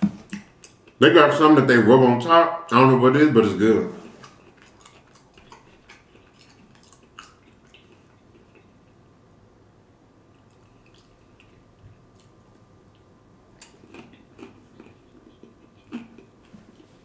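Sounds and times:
wet chewing sounds: 0.2 - 1.0, 3.9 - 9.0, 10.3 - 17.0.

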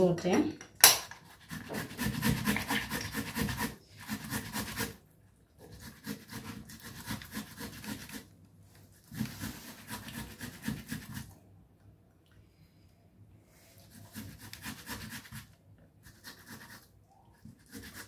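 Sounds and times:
tomato scraping on a grater: 1.3 - 5.0, 5.6 - 8.3, 9.0 - 11.3, 13.8 - 16.9, 17.5 - 18.0.

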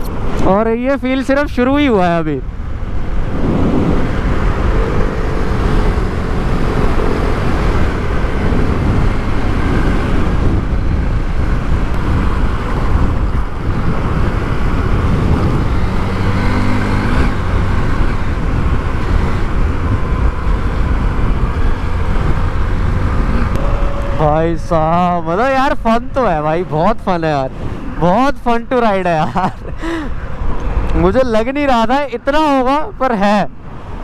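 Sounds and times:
road and wind noise: 0.0 - 34.0
motorcycle engine: 2.4 - 28.1.

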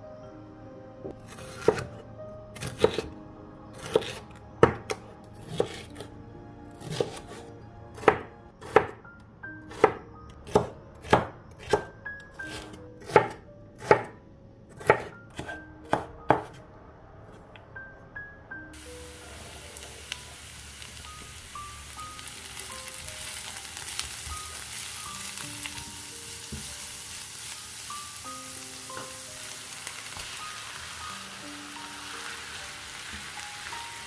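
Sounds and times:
knife chopping on wooden board: 12.5 - 14.1.

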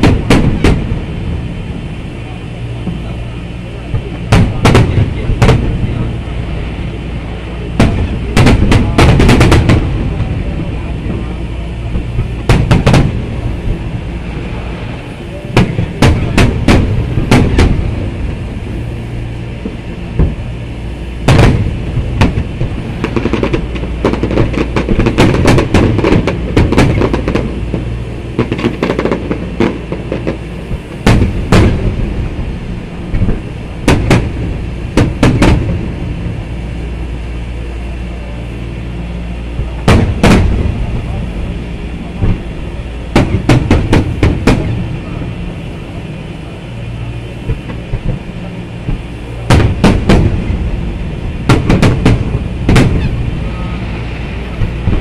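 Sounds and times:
fireworks booming: 0.0 - 55.0
low rumble: 0.0 - 55.0.

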